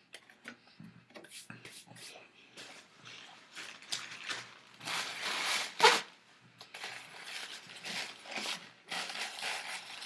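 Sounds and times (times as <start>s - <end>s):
sharp paper crackle: 3.5s - 6.1s, 6.7s - 10.0s.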